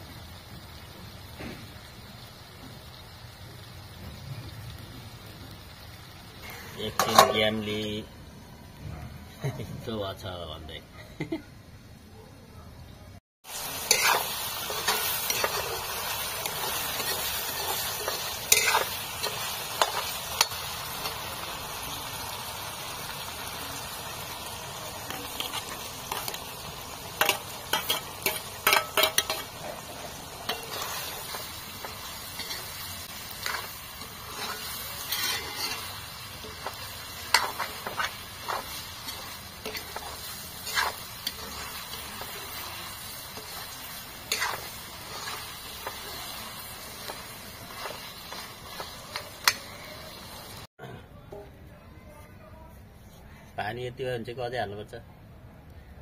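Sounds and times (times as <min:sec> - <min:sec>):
chicken sizzling in a pan: 0:00.0 - 0:08.4, 0:13.4 - 0:50.7
metal spoon scraping a pan: 0:06.7 - 0:07.7, 0:13.7 - 0:21.3, 0:25.0 - 0:50.3.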